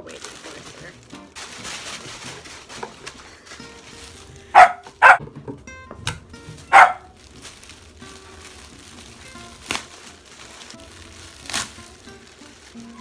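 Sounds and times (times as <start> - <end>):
faint background music: 0.0 - 13.0
dog barking: 4.5 - 5.2, 6.7 - 7.1.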